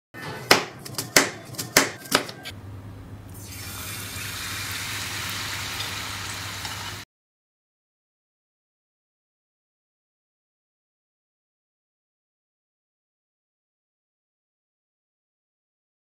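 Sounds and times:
knife chopping onion on wooden board: 0:00.2 - 0:02.5
onion deep-frying in hot oil: 0:03.3 - 0:07.1.

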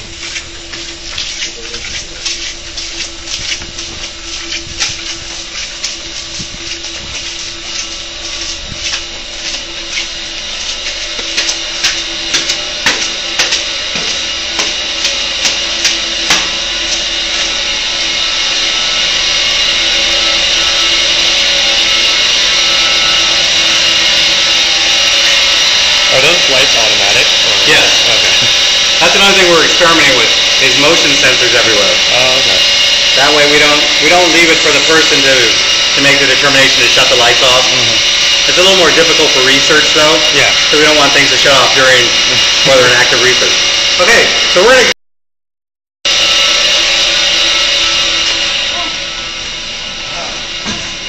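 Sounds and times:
footsteps going down stairs: 0:00.0 - 0:40.2
machinery hiss and hum: 0:00.0 - 0:44.9, 0:46.1 - 0:51.0
steady hum: 0:00.0 - 0:44.9, 0:46.1 - 0:51.0.

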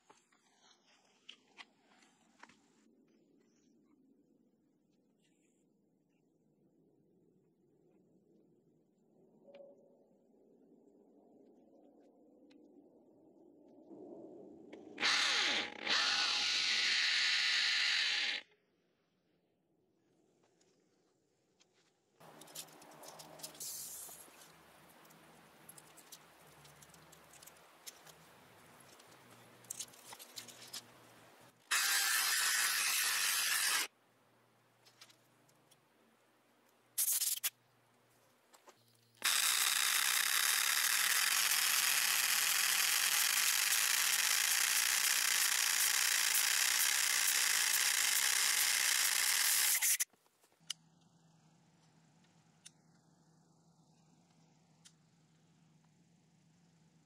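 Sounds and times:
electric drill boring into stone: 0:15.0 - 0:18.4, 0:31.7 - 0:33.9, 0:39.2 - 0:50.0.

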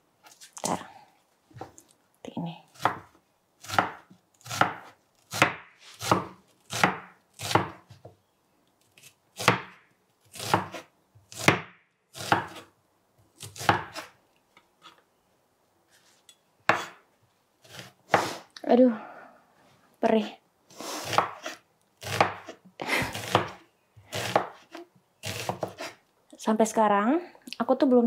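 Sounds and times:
knife slicing onion on board: 0:02.7 - 0:08.0, 0:09.0 - 0:12.7, 0:13.4 - 0:14.2, 0:16.6 - 0:17.0, 0:17.6 - 0:18.4, 0:21.0 - 0:26.0.

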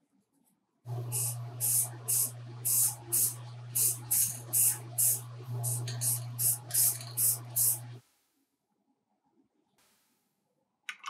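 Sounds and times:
steady low hum: 0:00.9 - 0:08.3
spray can bursts: 0:01.1 - 0:08.2.

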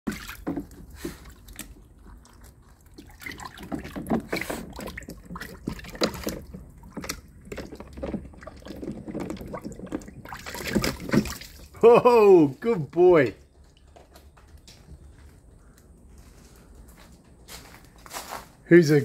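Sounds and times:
water splashing in a pool: 0:00.0 - 0:12.8.

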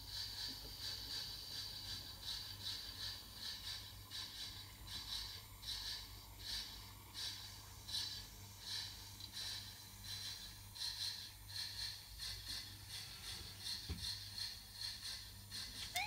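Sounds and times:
model train motor humming: 0:00.0 - 0:16.0.

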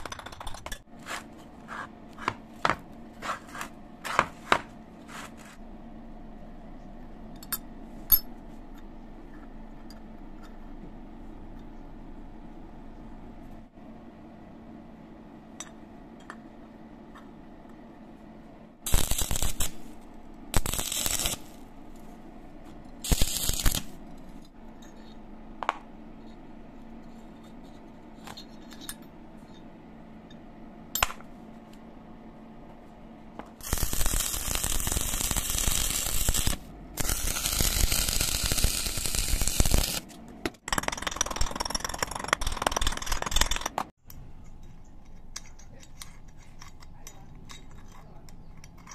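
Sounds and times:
arc welding crackle: 0:18.9 - 0:21.7, 0:23.0 - 0:24.0, 0:33.6 - 0:40.1.

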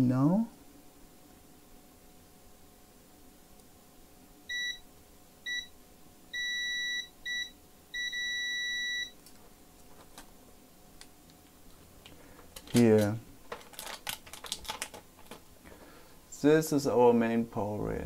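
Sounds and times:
multimeter high-pitched beep: 0:04.5 - 0:04.8, 0:05.5 - 0:05.7, 0:06.4 - 0:09.2.

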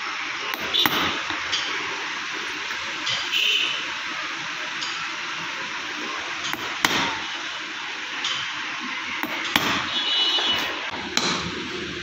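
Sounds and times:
hammer striking metal punch: 0:00.5 - 0:01.7, 0:06.4 - 0:07.2, 0:09.2 - 0:11.5.

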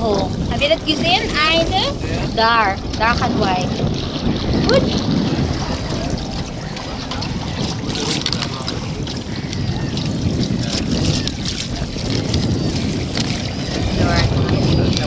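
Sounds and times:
water rushing around boat hull: 0:00.0 - 0:15.0
wind buffeting microphone: 0:00.0 - 0:15.0.

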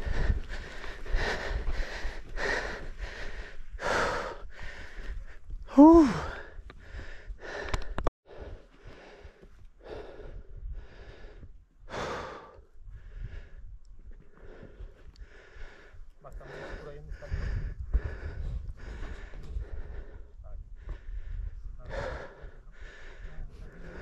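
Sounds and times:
person breathing hard: 0:00.0 - 0:24.0
person grunting: 0:05.7 - 0:06.4.

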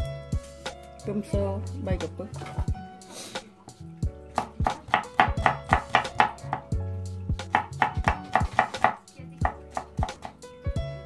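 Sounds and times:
background music: 0:00.0 - 0:11.0
knife chopping on wooden board: 0:04.3 - 0:06.7, 0:07.4 - 0:10.4.

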